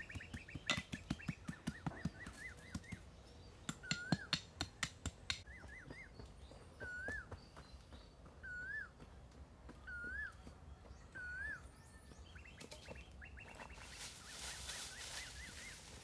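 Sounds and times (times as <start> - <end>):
sharp wooden knocks: 0.0 - 3.0, 3.6 - 5.4
bird whistling calls: 0.0 - 3.1, 3.7 - 4.5, 5.4 - 7.6, 8.4 - 9.0, 9.8 - 16.0.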